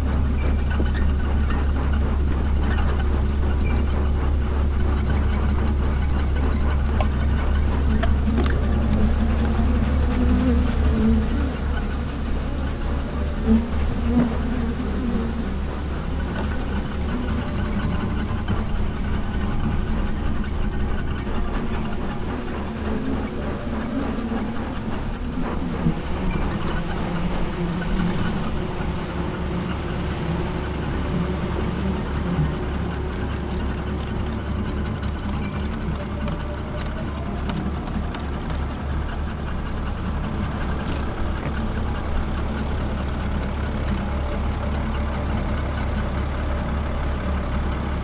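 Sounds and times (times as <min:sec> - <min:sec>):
engine idling: 0:00.0 - 0:48.0
honeybees buzzing: 0:06.6 - 0:20.3, 0:22.4 - 0:43.2
ratchet strap clicking: 0:32.3 - 0:38.7.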